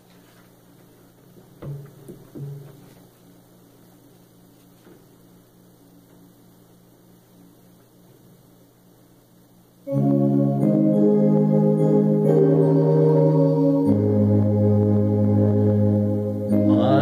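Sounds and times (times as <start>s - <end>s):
electrical mains hum: 0.0s - 17.0s
hymn accompaniment chords: 9.9s - 17.0s.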